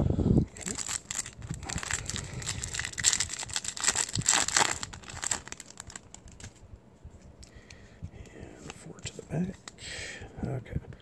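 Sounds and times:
foil wrapper crinkling and tearing: 0:00.5 - 0:06.6.

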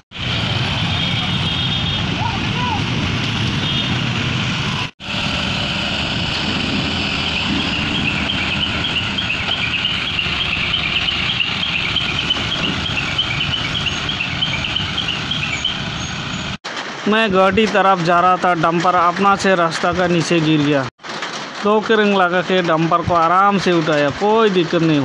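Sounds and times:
crane and vehicle engines running: 0:00.1 - 0:17.0
high chirping: 0:07.4 - 0:16.6.

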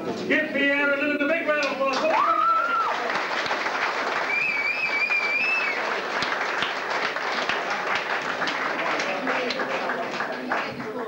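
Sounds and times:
crowd applauding: 0:01.9 - 0:11.0
long high whistle: 0:04.3 - 0:05.8.

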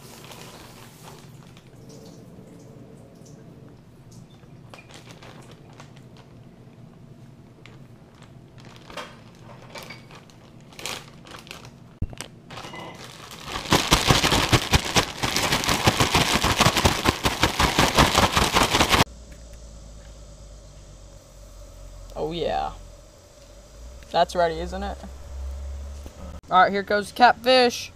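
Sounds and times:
plastic bag crinkling: 0:00.0 - 0:01.7, 0:04.7 - 0:06.5, 0:07.6 - 0:19.1
plastic bag shaken rattling: 0:04.7 - 0:06.3, 0:08.0 - 0:19.1.

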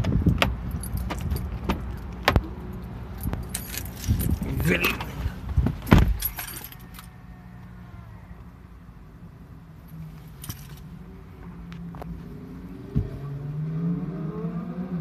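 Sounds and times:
car engine hum in cabin: 0:00.0 - 0:15.0
keys jangling: 0:00.6 - 0:02.2, 0:03.1 - 0:05.1, 0:06.0 - 0:07.1
heavy thump: 0:05.5 - 0:06.2.

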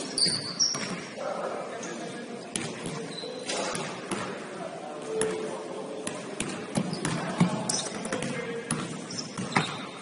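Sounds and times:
voices in background: 0:00.0 - 0:10.0
basketball bouncing on gym floor: 0:06.0 - 0:09.9.

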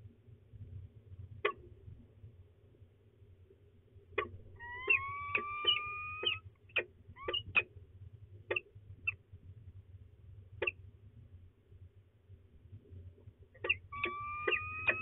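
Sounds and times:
falcon chipping notes: 0:04.5 - 0:06.4, 0:13.6 - 0:15.0
falcon whining call: 0:04.5 - 0:06.5, 0:07.2 - 0:07.6, 0:13.6 - 0:15.0.

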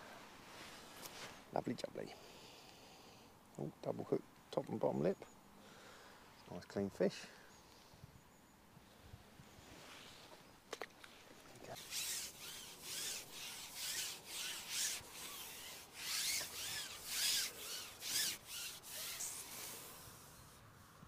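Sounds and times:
fishing pole rasping through hands: 0:11.8 - 0:20.5.

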